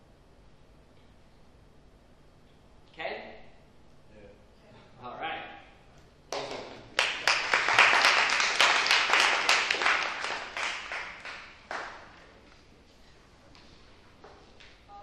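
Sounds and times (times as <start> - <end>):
audience applauding: 6.3 - 12.4.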